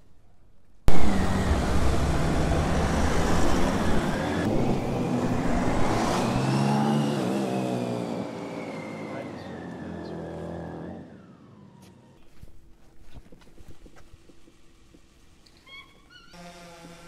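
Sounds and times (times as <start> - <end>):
vehicles revving and driving past: 0.9 - 12.2.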